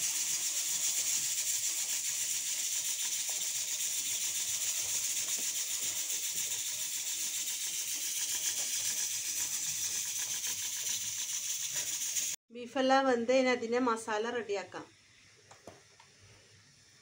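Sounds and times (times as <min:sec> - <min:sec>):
high-pitched hiss: 0:00.0 - 0:12.4.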